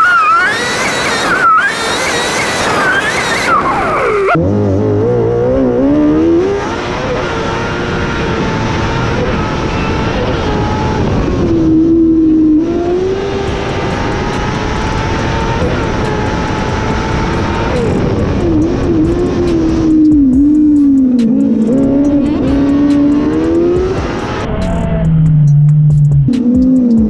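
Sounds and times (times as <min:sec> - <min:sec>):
motorcycle engine running hard: 0:06.1 - 0:27.0.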